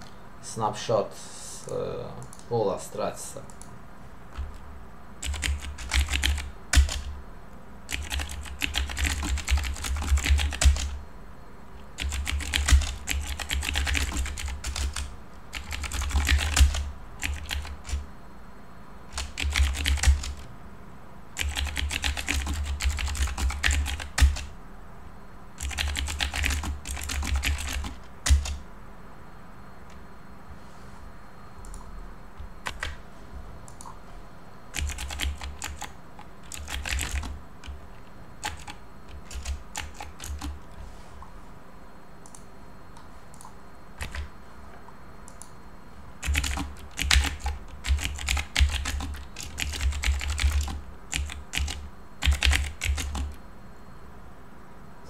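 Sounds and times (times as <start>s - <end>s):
computer keyboard typing: 5.2s - 7.2s, 7.9s - 11.0s, 11.8s - 18.1s, 19.1s - 20.5s, 21.4s - 24.6s, 25.6s - 28.6s, 32.6s - 33.0s, 34.7s - 40.7s, 43.3s - 44.3s, 46.2s - 53.4s.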